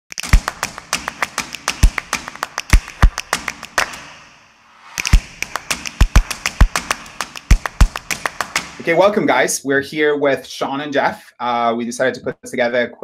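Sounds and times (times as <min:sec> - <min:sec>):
percussive music beat: 0:00.1 - 0:09.0.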